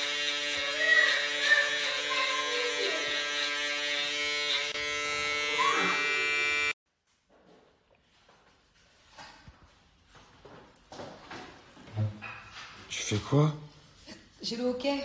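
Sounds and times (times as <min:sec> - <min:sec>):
beard trimmer buzzing: 0:00.0 - 0:06.8.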